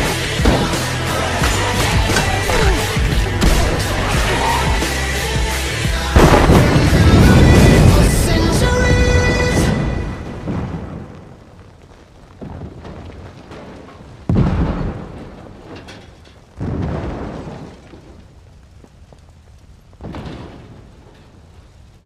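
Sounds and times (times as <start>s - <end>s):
deep booming hits: 0.0s - 11.3s, 14.3s - 15.5s.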